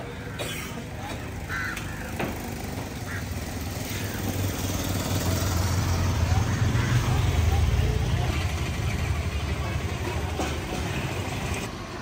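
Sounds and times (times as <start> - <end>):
faint voices: 5.7 - 11.5.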